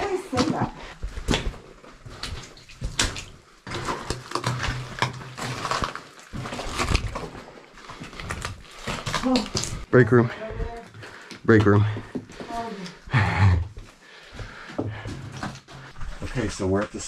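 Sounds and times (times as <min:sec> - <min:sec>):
footsteps splashing through water: 0:01.0 - 0:09.9.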